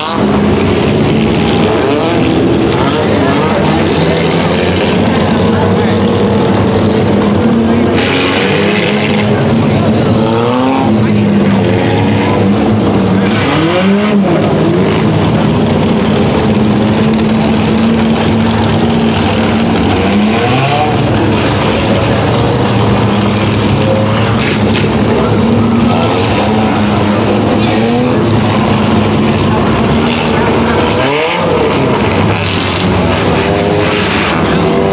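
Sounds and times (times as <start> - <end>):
engines running: 0.0 - 34.9
race cars passing: 0.0 - 34.9.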